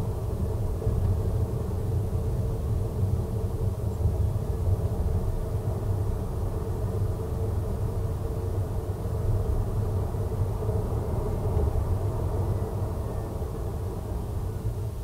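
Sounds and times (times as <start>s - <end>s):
engines idling in traffic: 0.0s - 15.0s.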